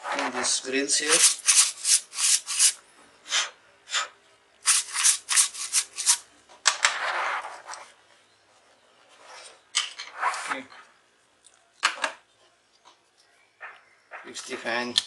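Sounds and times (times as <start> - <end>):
paintbrush scrubbing heatsink fins: 0.9 - 2.8, 4.7 - 6.2.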